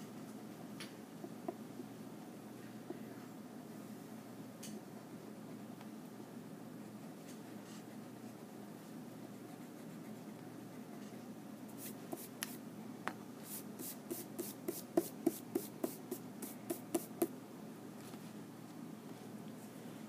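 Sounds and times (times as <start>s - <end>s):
hand brushing paper swishes: 11.7s - 12.6s, 13.4s - 17.3s.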